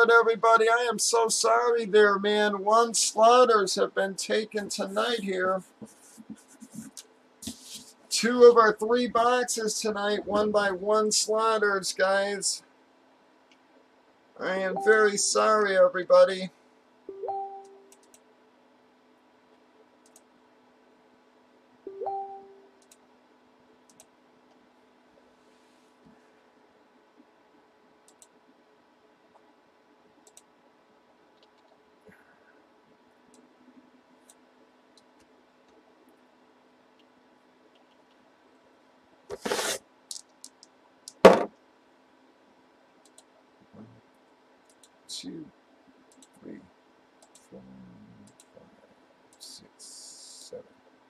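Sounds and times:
faint mouse clicks: 17.9 - 18.2, 20.0 - 20.3, 28.1 - 28.4, 30.2 - 30.5, 37.7 - 38.3, 43.0 - 43.4, 44.6 - 45.0, 46.1 - 46.4, 47.2 - 47.5.

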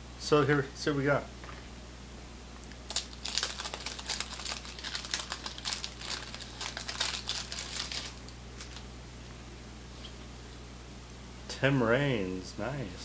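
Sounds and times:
wrapper crinkling as torn open: 2.9 - 8.9.

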